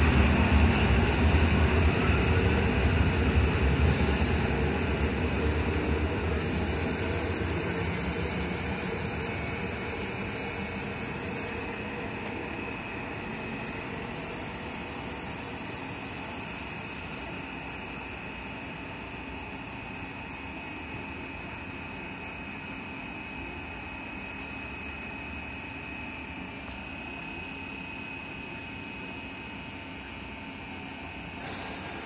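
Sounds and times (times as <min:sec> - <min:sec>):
electric train rumbling: 0:00.0 - 0:21.6
high steady whine: 0:00.0 - 0:32.0.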